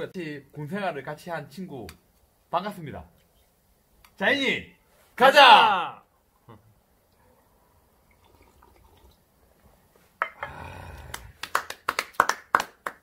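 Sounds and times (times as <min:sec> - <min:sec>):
drinking from metal cups: 0:10.2 - 0:11.1
breathy exhaling: 0:10.4 - 0:11.4
hands clapping: 0:11.0 - 0:13.0.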